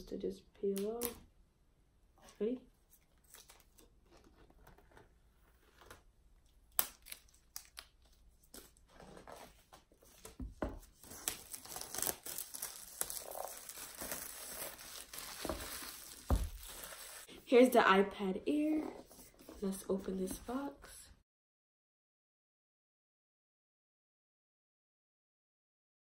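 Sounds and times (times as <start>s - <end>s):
plastic shrink-wrap crinkling and tearing: 6.7s - 8.8s, 11.0s - 17.3s.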